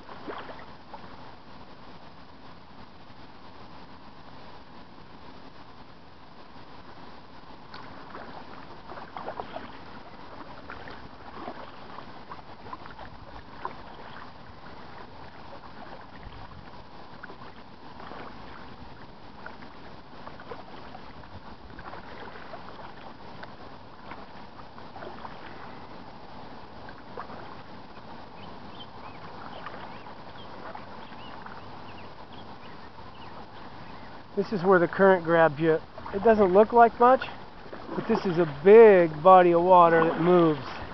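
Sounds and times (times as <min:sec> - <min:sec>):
water splashes and drips: 0:00.0 - 0:01.0, 0:07.7 - 0:25.9, 0:29.2 - 0:29.9, 0:34.4 - 0:40.9
kayak paddle dipping into water: 0:00.0 - 0:01.8, 0:07.4 - 0:40.9.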